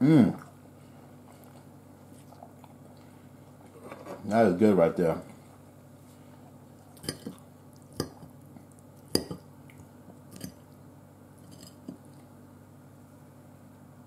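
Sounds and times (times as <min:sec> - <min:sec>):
metal fork tapping on plate: 0:09.1 - 0:09.4.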